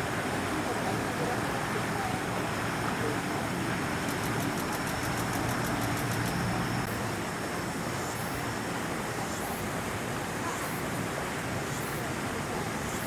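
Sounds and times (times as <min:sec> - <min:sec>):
outdoor background noise: 0:00.0 - 0:13.0
faint high ticks: 0:04.0 - 0:06.5.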